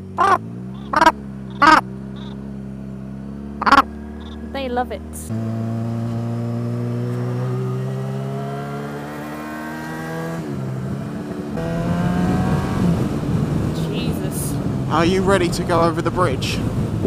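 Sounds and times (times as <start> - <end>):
motorcycle engine: 0.0 - 17.0
wind rushing over microphone: 10.0 - 17.0.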